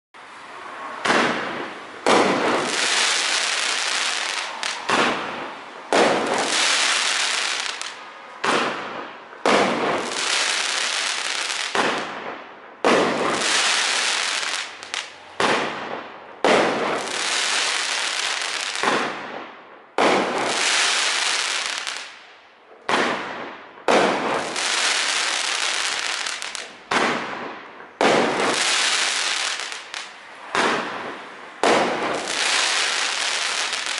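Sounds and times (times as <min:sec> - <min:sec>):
firework shots popping: 0:01.0 - 0:22.2, 0:22.9 - 0:33.9
firework crackling hiss: 0:28.1 - 0:30.8, 0:31.8 - 0:33.9.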